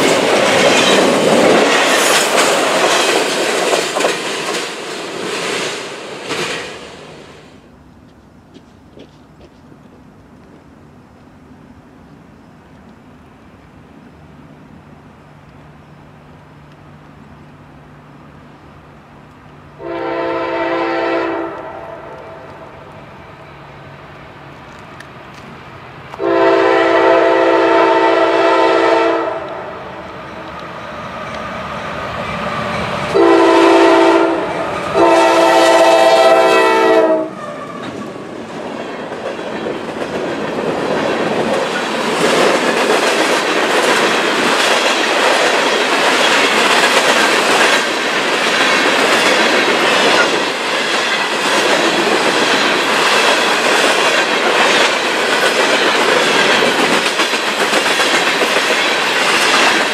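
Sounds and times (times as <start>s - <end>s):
train wheels clattering over rails: 0.0s - 7.6s, 37.4s - 59.9s
locomotive air horn blasts: 19.8s - 22.7s, 26.2s - 29.9s, 33.1s - 37.9s.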